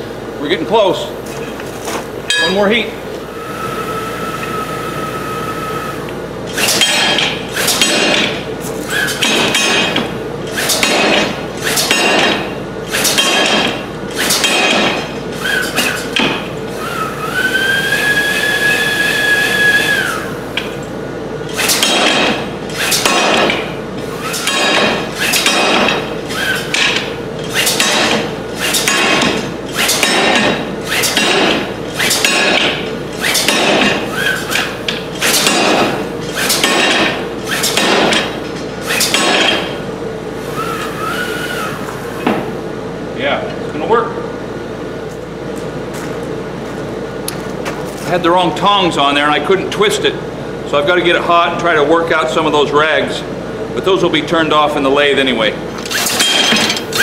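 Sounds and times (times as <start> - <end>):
steady hum: 0.0 - 57.0
machine whine: 2.3 - 44.0
power hammer pounding steel: 6.5 - 8.4, 9.0 - 16.5, 21.6 - 39.8, 55.9 - 57.0.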